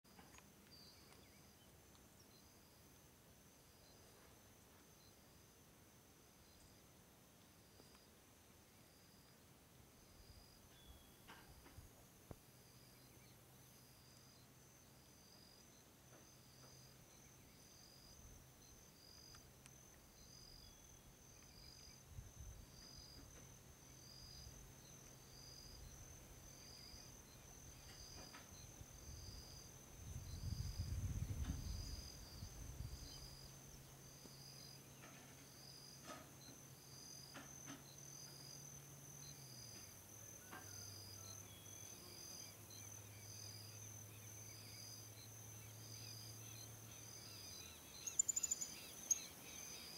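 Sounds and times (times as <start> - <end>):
high insect chirp: 0.1 - 49.9
insects shrilling: 47.6 - 49.9.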